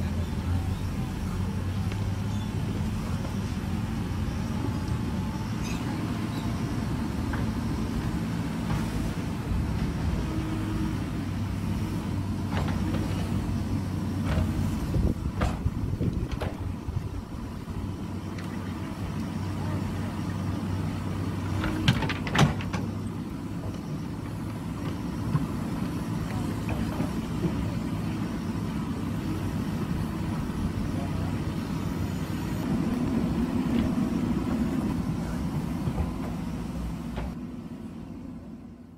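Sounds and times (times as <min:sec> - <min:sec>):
diesel engine under load: 0:00.0 - 0:38.9.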